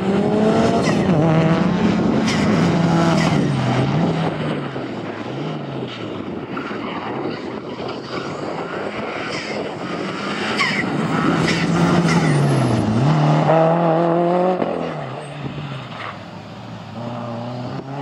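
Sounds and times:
car engine driven hard: 0:00.0 - 0:18.0.

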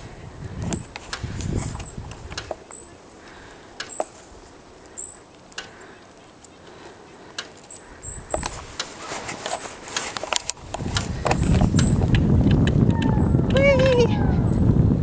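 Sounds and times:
wind rumble on microphone: 0:00.0 - 0:02.6, 0:08.0 - 0:08.8, 0:10.5 - 0:15.0
bike and camera clicks and knocks: 0:00.6 - 0:02.8, 0:03.8 - 0:04.2, 0:07.3 - 0:13.1.

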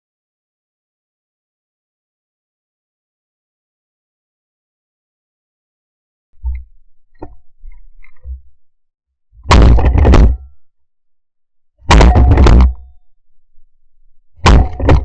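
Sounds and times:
shotgun shots: 0:09.5 - 0:10.4, 0:11.9 - 0:12.8, 0:14.4 - 0:15.0.

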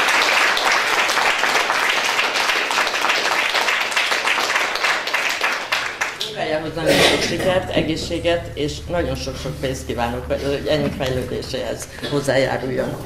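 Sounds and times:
many hands clapping: 0:00.0 - 0:06.4.

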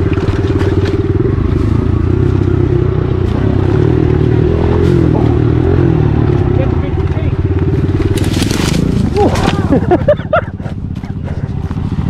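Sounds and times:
bike clicks and rattles: 0:00.0 - 0:02.6, 0:06.3 - 0:12.0
dirt bike engine running: 0:00.0 - 0:12.0.

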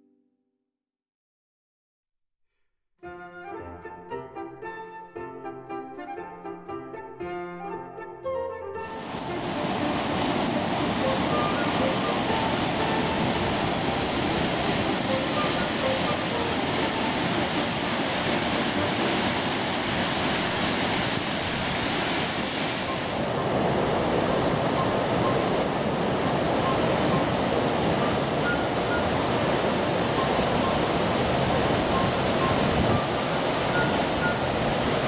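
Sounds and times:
waterfall rushing: 0:08.9 - 0:35.0.

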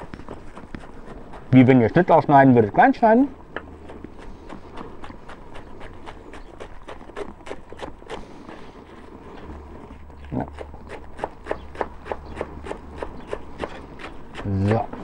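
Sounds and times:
knife chopping on cutting board: 0:10.5 - 0:15.0.

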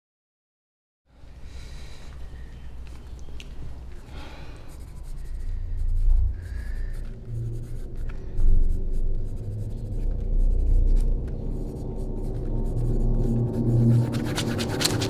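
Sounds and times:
low drone: 0:01.2 - 0:15.0
pencil scratching on paper: 0:04.7 - 0:15.0.

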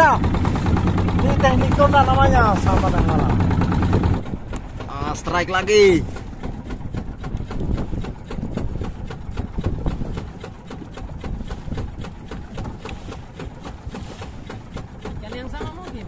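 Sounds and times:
boat engine rumbling: 0:00.0 - 0:16.0
short knocks and clicks: 0:03.3 - 0:05.4.

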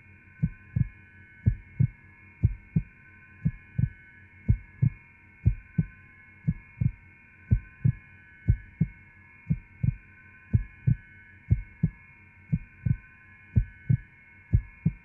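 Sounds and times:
heartbeat double thump: 0:00.4 - 0:00.9, 0:01.5 - 0:03.9, 0:04.5 - 0:05.9, 0:06.5 - 0:06.9, 0:07.5 - 0:08.9, 0:09.5 - 0:10.0, 0:10.6 - 0:13.0, 0:13.6 - 0:14.0, 0:14.6 - 0:15.0.

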